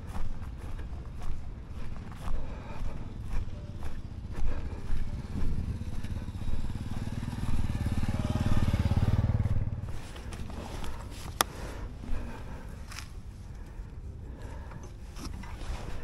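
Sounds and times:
small motorcycle engine running: 1.7s - 11.1s.

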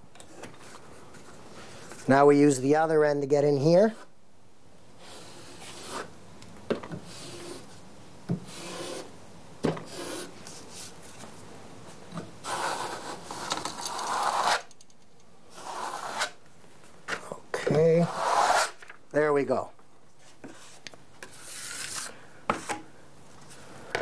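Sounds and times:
trowel scraping mastic: 12.4s - 14.8s, 15.5s - 16.4s, 18.0s - 18.9s, 20.3s - 22.8s.

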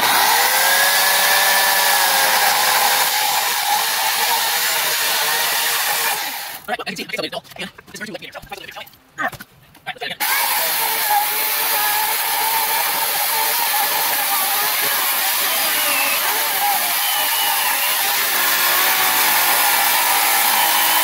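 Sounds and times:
electric chainsaw cutting log: 0.0s - 6.7s, 10.2s - 21.0s.

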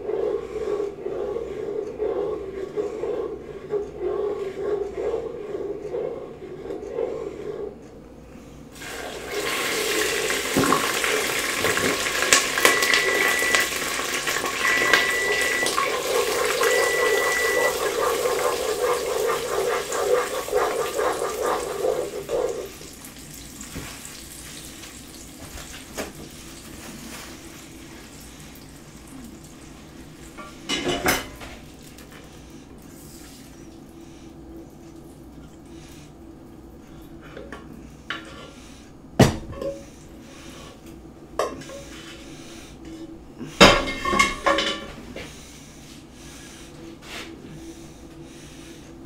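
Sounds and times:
toffee sizzling in a pot: 8.8s - 25.9s
stove timer beeps: 12.4s - 18.2s.

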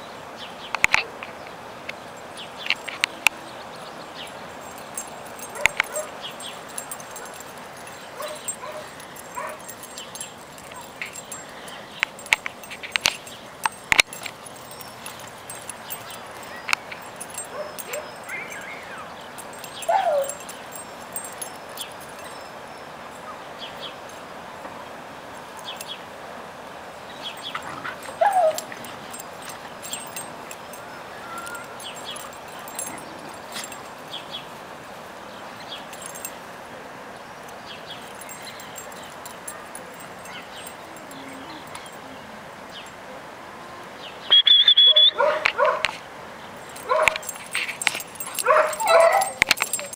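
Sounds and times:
puppies yipping and whimpering: 14.6s - 21.6s, 27.4s - 33.9s, 46.8s - 49.9s
high-pitched puppy cry: 19.8s - 20.4s, 48.4s - 49.9s
puppy yelps: 19.8s - 20.4s, 28.1s - 28.7s, 31.1s - 31.8s, 44.4s - 45.9s, 48.4s - 49.9s.

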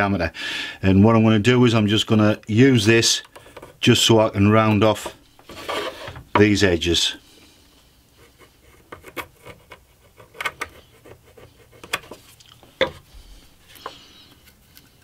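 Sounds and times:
pencil scratching on wood board: 5.0s - 6.2s, 8.2s - 13.0s.

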